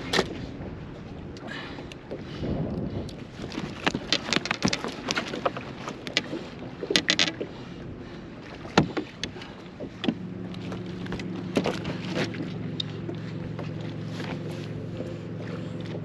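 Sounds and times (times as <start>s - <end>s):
fishing tackle rattling on deck: 3.5s - 7.4s
steady low hum: 6.0s - 16.0s.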